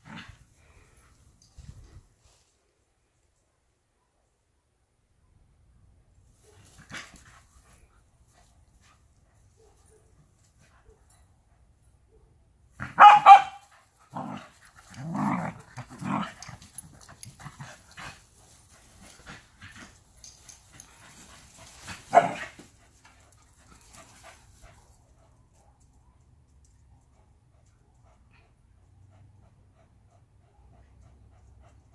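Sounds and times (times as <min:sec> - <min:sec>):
dogs barking: 0:12.8 - 0:13.6.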